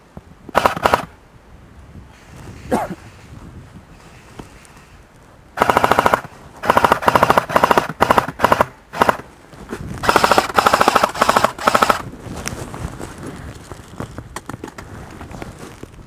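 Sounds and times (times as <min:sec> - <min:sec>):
airsoft gun firing bursts: 0:00.6 - 0:01.1, 0:05.6 - 0:09.3, 0:10.0 - 0:12.0.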